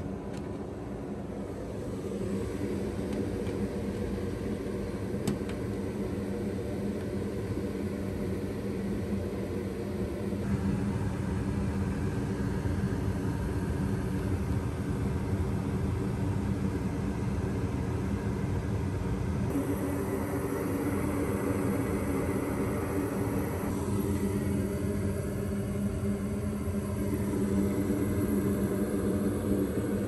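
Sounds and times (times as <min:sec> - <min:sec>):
furnace blower hum and rumble: 0:00.0 - 0:30.0.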